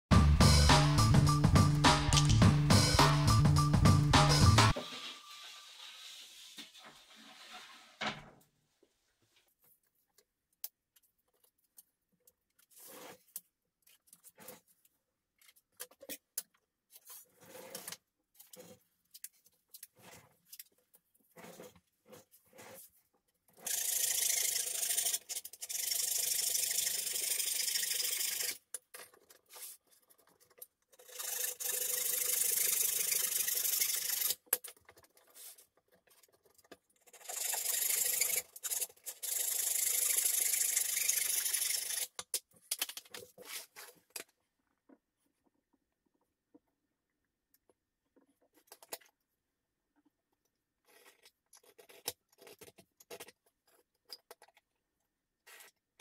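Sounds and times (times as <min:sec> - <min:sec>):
hand saw cutting wood: 0:37.2 - 0:42.2.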